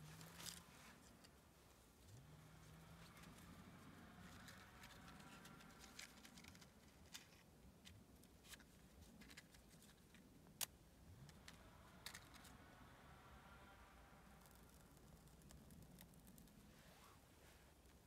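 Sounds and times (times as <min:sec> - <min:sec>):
faint clicks and ticks: 0:14.1 - 0:16.7.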